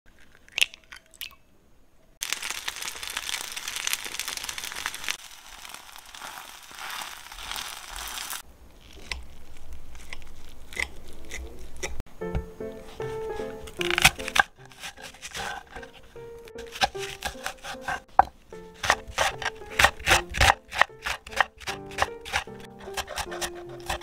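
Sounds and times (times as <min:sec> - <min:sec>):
crepe sizzling in oil: 0:02.2 - 0:08.5.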